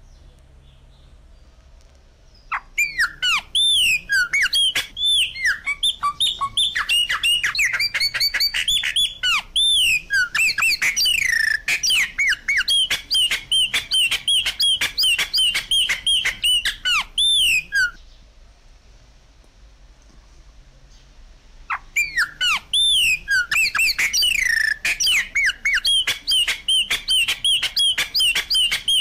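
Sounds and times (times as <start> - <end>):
bird calling with clicks and whistles: 2.4 - 18.0, 21.7 - 29.0.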